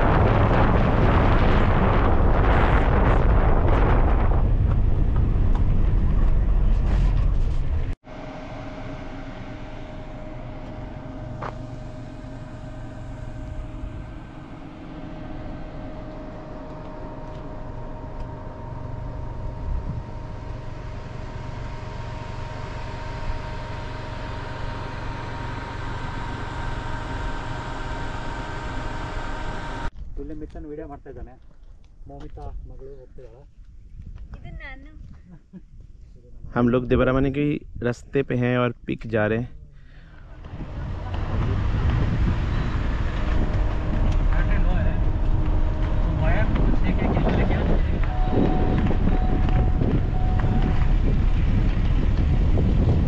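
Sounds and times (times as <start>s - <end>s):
wind buffeting microphone: 0.0s - 8.0s, 32.3s - 36.6s, 40.5s - 53.0s
car engine and tyre rumble: 0.0s - 30.0s, 39.6s - 53.0s
faint steady whine: 8.1s - 32.0s, 39.4s - 53.0s.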